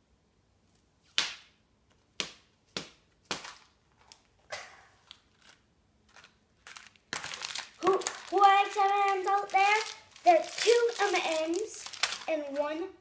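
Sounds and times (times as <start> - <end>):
plastic egg snapping: 5.0 - 12.6.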